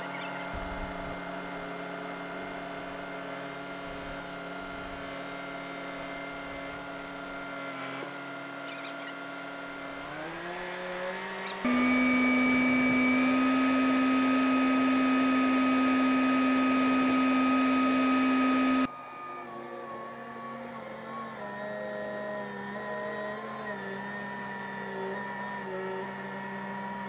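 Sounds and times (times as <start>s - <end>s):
forklift engine whine: 11.6s - 18.9s.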